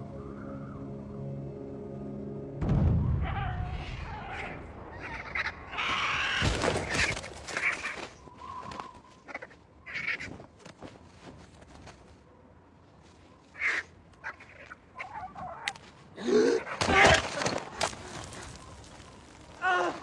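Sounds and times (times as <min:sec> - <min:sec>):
low rumble: 0:00.0 - 0:05.8
vultures crying harshly: 0:03.2 - 0:10.3, 0:13.6 - 0:15.7.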